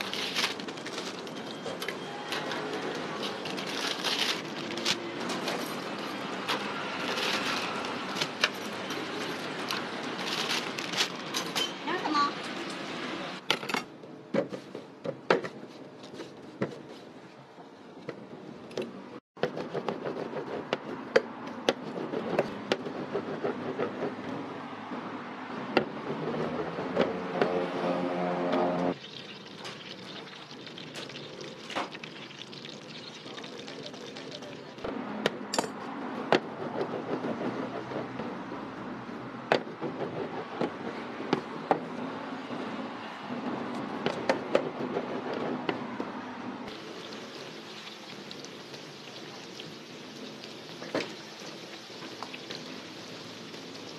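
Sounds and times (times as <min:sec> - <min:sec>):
steady background noise: 0:00.0 - 0:53.9
rolling pin on steel worktop: 0:19.4 - 0:24.3.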